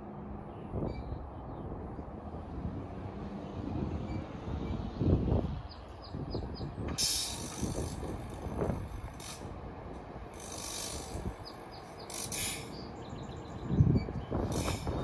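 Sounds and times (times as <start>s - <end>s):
train equipment rumble: 6.6s - 15.0s.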